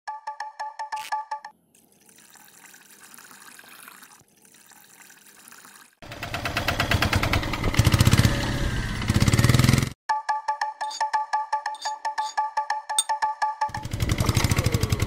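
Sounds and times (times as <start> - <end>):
water trickling into a puddle: 1.8 - 6.0
small engine running: 6.0 - 10.0, 13.7 - 15.0.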